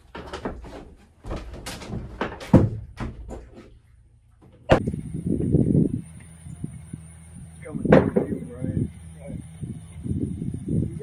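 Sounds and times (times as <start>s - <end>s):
knocks and thumps on wood: 0.1s - 3.7s
rumbling clatter: 4.7s - 11.0s.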